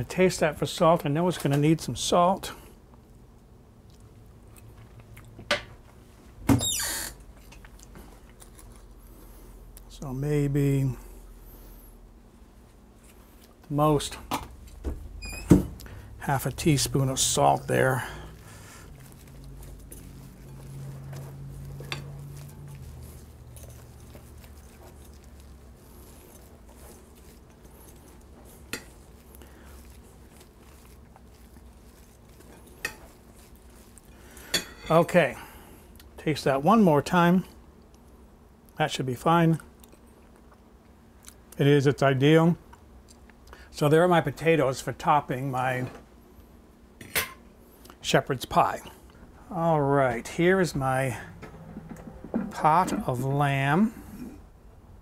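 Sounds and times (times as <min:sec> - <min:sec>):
spatula scraping and squishing: 0:15.8 - 0:35.3, 0:50.0 - 0:53.4.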